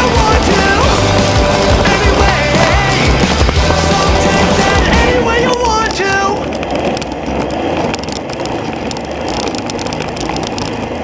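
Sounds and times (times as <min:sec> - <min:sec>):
longboard wheels rolling on asphalt: 0:00.0 - 0:11.0.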